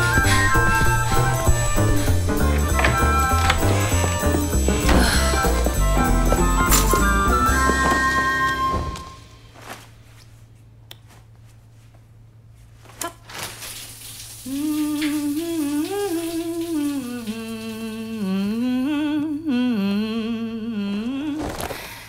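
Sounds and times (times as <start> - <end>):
woman humming a tune: 0.0 - 9.0, 14.5 - 21.5.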